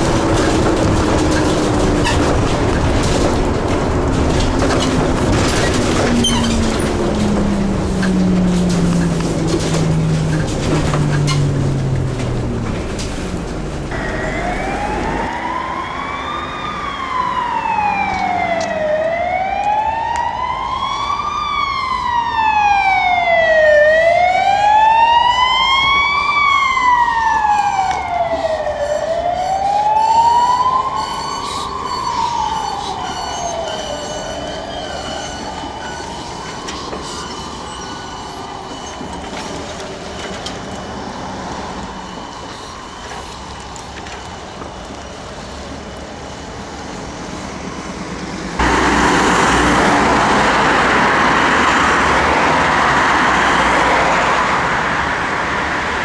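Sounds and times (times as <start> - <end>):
emergency siren wailing: 0.0 - 56.0.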